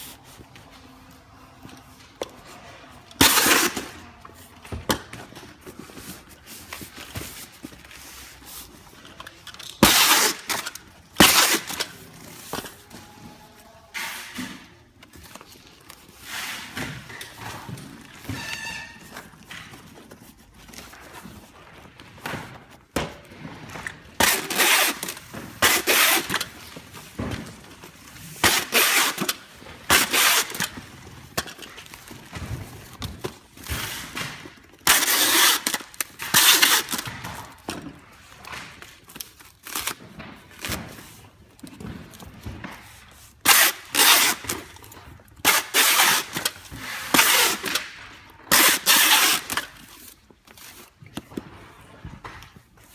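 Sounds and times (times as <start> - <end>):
packing tape tearing screech: 3.1 - 4.2, 9.6 - 12.9, 24.2 - 26.7, 28.3 - 32.2, 33.6 - 37.7, 43.4 - 50.7.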